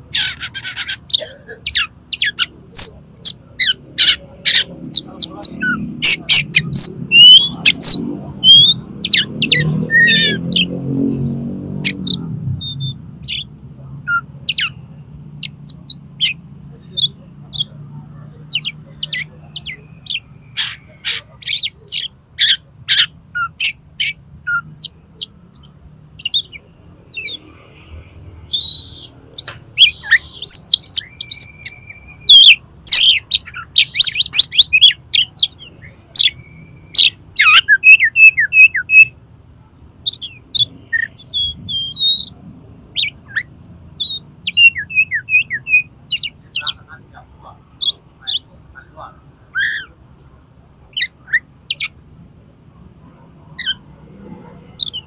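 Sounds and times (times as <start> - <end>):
harsh raspy bird notes: 0.0 - 39.2, 40.0 - 50.0, 50.9 - 52.0, 53.5 - 55.0
bird singing whistled notes: 3.6 - 13.5, 28.4 - 39.1, 40.0 - 46.8.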